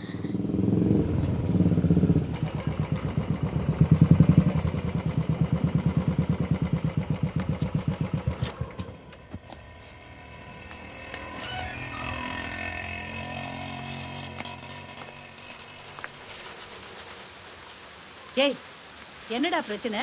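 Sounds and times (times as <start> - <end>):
motorcycle engine putter: 0.6 - 10.0.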